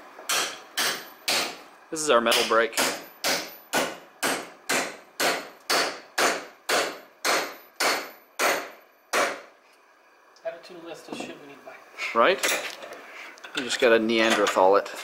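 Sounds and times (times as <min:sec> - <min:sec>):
hammer striking metal: 0:00.3 - 0:01.6, 0:02.3 - 0:09.5.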